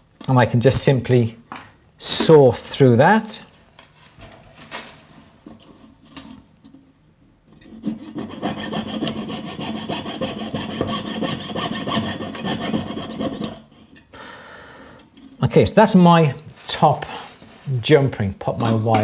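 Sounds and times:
piercing saw cutting wire: 7.6s - 14.0s.

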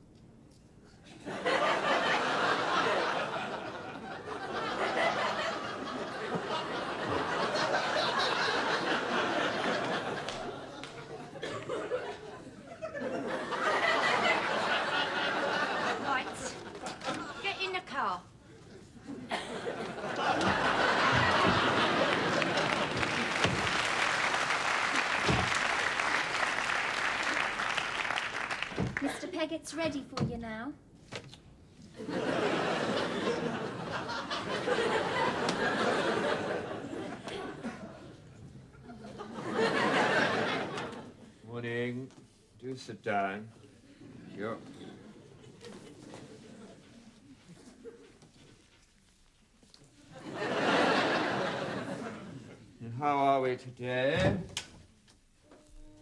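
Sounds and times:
studio audience laughing: 1.1s - 17.6s, 18.5s - 29.2s, 32.0s - 41.3s, 44.0s - 48.2s, 50.1s - 52.6s
audience applauding: 19.8s - 29.2s.

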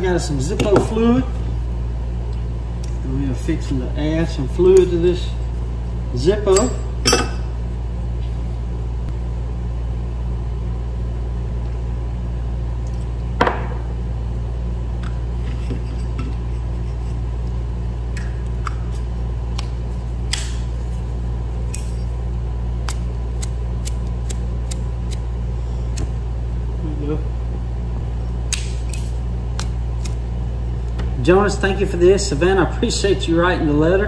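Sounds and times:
low hum: 0.0s - 32.4s
lighter metallic clicks: 28.5s - 30.2s.

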